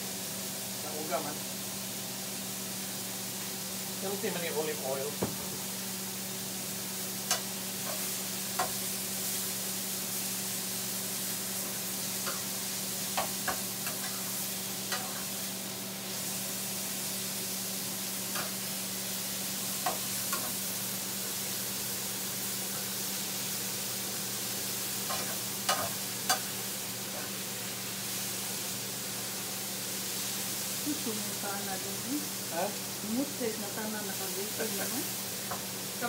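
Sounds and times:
vegetables sizzling in oil: 0.0s - 36.0s
metal tongs clacking on pan: 7.3s - 8.0s, 25.1s - 26.5s.

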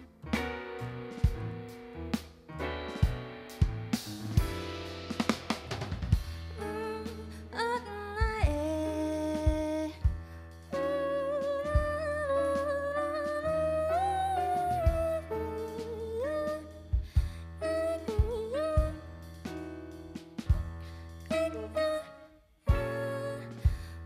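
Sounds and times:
drum kit: 0.0s - 13.5s, 14.4s - 21.8s, 22.7s - 24.0s
double bass: 0.0s - 22.1s
woman singing: 6.6s - 10.1s, 10.7s - 16.9s, 17.6s - 19.0s, 21.3s - 24.0s.

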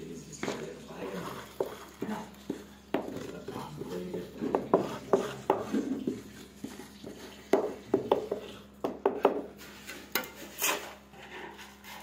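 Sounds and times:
cement slab knocking on concrete: 2.5s - 6.2s, 7.5s - 9.5s
gritty scraping: 9.6s - 12.0s.

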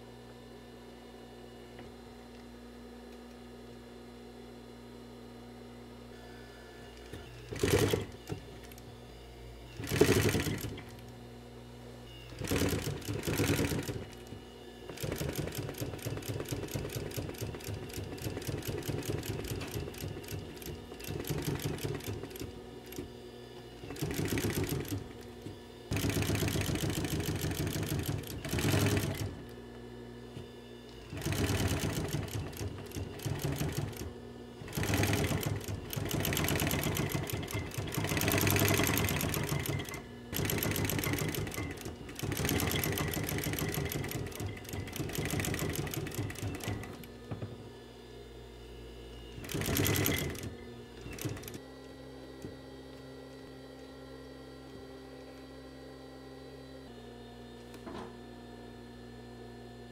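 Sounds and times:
sewing machine stitching leather: 6.9s - 8.9s, 9.8s - 11.1s, 12.1s - 29.6s, 30.9s - 47.2s, 49.3s - 51.7s.

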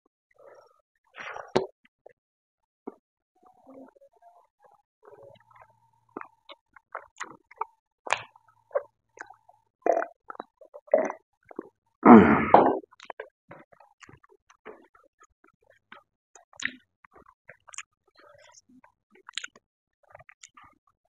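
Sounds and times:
gulping water: 3.6s - 20.8s
man chewing food: 5.0s - 11.8s, 12.9s - 20.8s
loud throaty sound: 12.0s - 12.8s.

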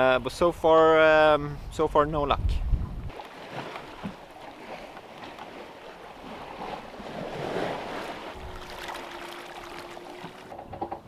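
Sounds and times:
wind on microphone: 1.4s - 3.2s, 6.2s - 11.0s
water splashing along hull: 2.9s - 11.0s.

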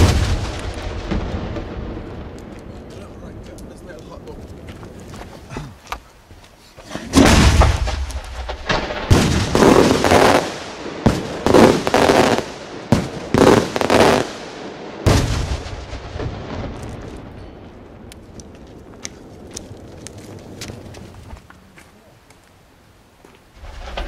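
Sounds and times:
firework launch boom: 0.0s - 2.4s, 7.1s - 14.4s
firework reports echoing: 0.0s - 4.7s.

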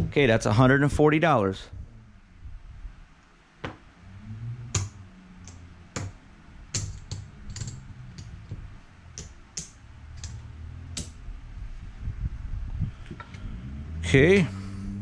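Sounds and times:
casino chips clicking: 6.8s - 10.4s.

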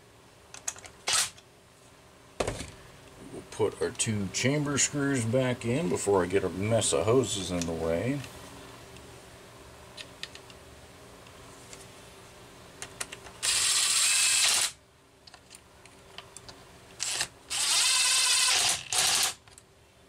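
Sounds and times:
cordless drill whining: 13.4s - 14.8s, 17.0s - 19.4s.

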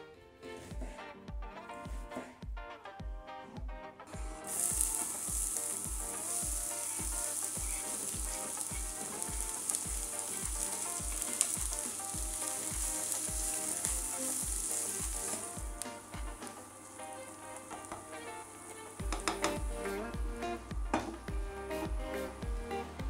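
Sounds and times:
onions sizzling in frying pan: 4.4s - 19.9s.

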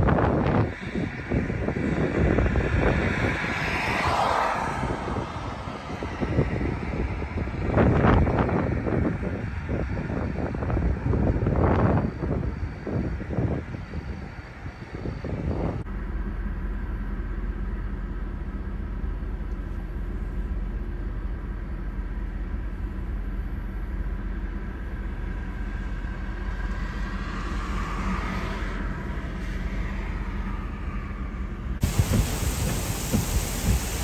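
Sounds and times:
car passing with tyre hiss: 0.0s - 15.0s, 25.1s - 34.0s
storm wind rumble: 0.0s - 34.0s.

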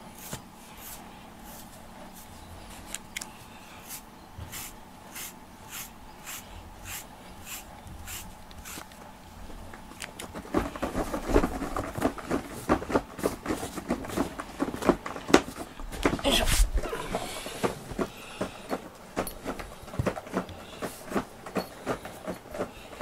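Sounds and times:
fingers scrubbing foam mat: 0.0s - 2.4s, 3.8s - 8.9s
brush stroking cat fur: 0.0s - 9.0s.

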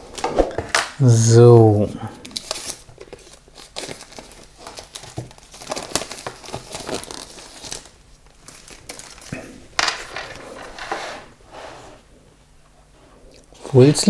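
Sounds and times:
cardboard packaging crinkling: 2.2s - 9.3s.

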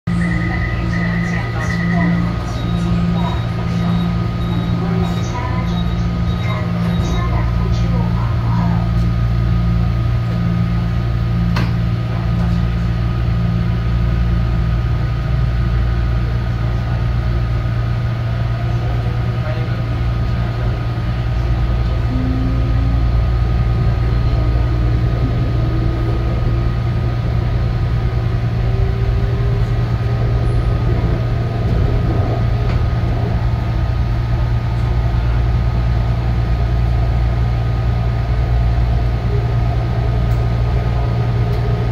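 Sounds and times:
train low hum: 0.0s - 41.9s
low pulsing tone: 18.7s - 41.9s.

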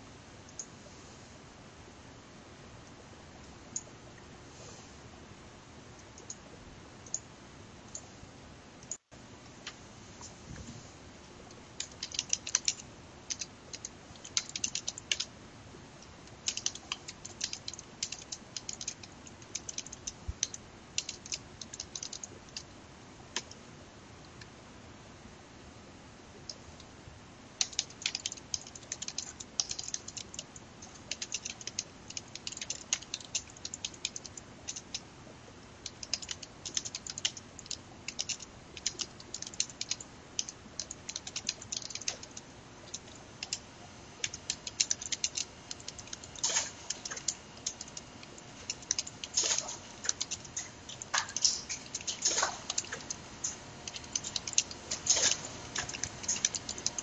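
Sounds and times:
keyboard typing clicks: 11.5s - 15.3s, 16.0s - 22.7s, 27.6s - 35.1s, 35.8s - 43.6s, 44.2s - 57.0s.

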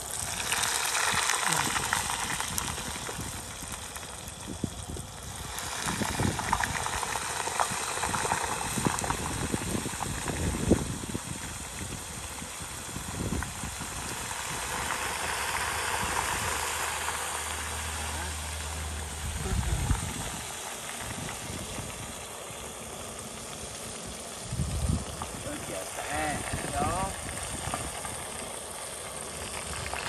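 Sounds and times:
oil bubbling and sizzling: 0.0s - 30.0s
oil crackles: 0.0s - 30.0s.

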